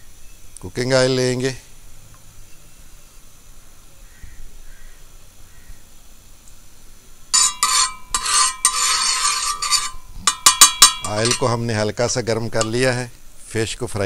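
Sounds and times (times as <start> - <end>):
metal spatula scraping griddle: 7.3 - 13.0.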